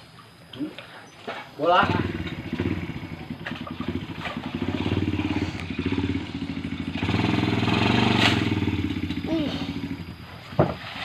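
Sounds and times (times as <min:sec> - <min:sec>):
small engine running: 0:01.7 - 0:10.5.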